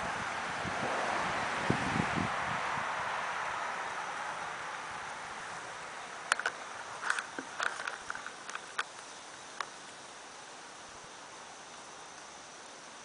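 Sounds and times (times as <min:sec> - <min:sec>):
leaves rustling in wind: 0:00.0 - 0:13.0
small sharp clicks: 0:06.3 - 0:09.8.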